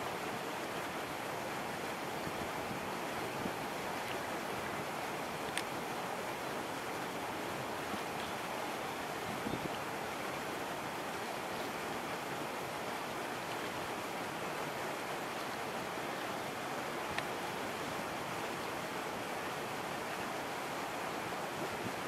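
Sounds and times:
faint click: 0:05.5 - 0:05.8, 0:17.1 - 0:17.3.

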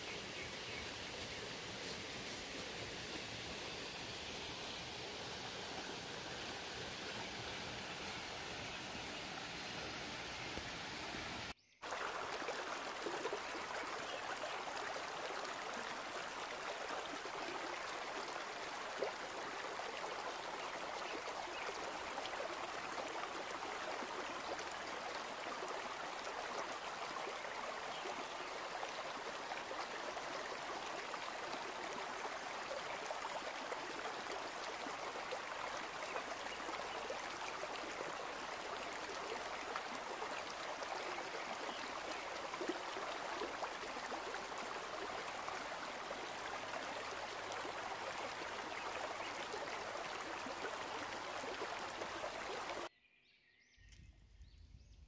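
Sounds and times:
stream running over rocks: 0:00.0 - 0:52.9
faint click: 0:53.9 - 0:54.1.

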